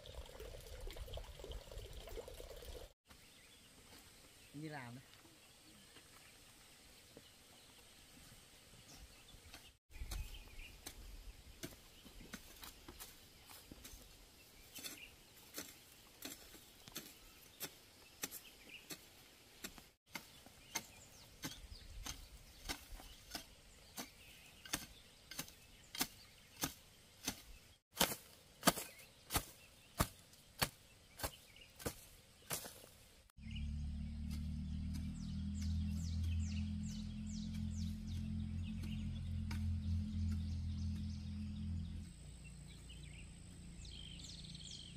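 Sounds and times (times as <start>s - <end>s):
faint outdoor background: 0.0s - 44.9s
hoe chopping into soil: 14.7s - 33.0s.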